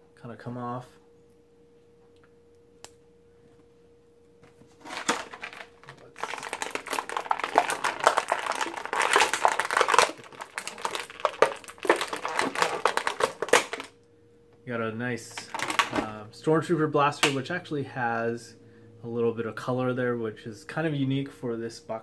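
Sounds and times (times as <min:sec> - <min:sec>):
faint steady hum: 0:00.0 - 0:22.0
plastic bag crinkling: 0:04.8 - 0:13.9, 0:15.3 - 0:16.2.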